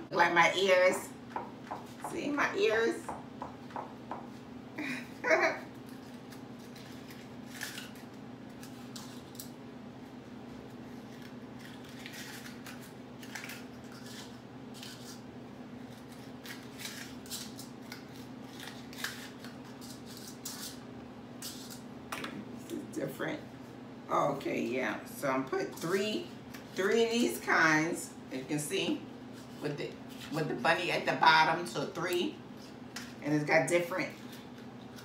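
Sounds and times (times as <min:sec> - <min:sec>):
steady low hum: 0:00.0 - 0:35.0
paper liners crinkling: 0:05.7 - 0:09.5, 0:10.7 - 0:15.2, 0:15.8 - 0:20.8.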